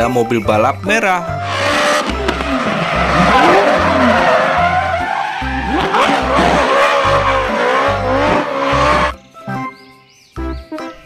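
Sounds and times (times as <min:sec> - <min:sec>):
tyres squealing and skidding: 0:01.2 - 0:09.2
background music bass beat: 0:01.3 - 0:09.2
race car engine revving: 0:01.4 - 0:09.2.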